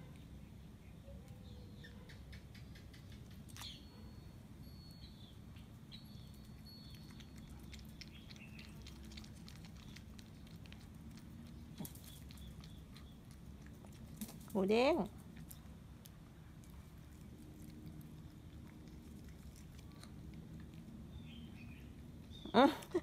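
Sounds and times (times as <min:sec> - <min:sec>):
dog licking: 0:07.2 - 0:14.2.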